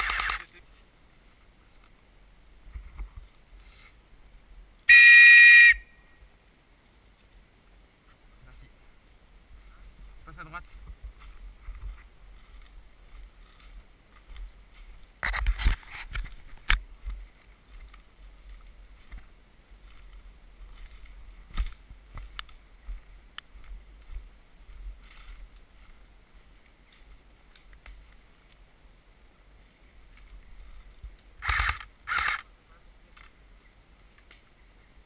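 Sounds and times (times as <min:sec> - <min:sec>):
sharp clicks: 0:00.0 - 0:00.5, 0:31.4 - 0:32.4
footsteps in dry leaves: 0:09.8 - 0:28.5.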